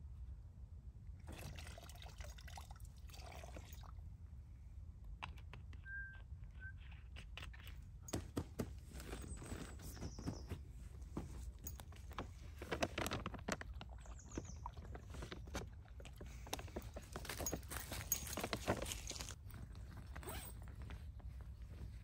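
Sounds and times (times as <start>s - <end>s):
plastic water bottle handled: 8.1s - 22.0s
foil pouch crinkling: 11.1s - 21.9s
crunching in dry leaves: 11.5s - 22.0s.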